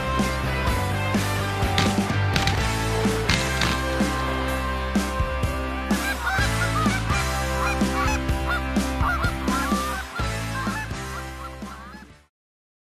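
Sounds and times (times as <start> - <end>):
background music with steady beat: 0.0 - 12.3
goose honking: 6.0 - 12.1.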